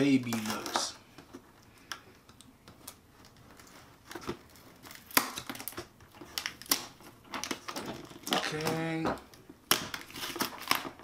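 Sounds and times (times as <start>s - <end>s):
knife slitting packing tape: 9.7s - 11.0s.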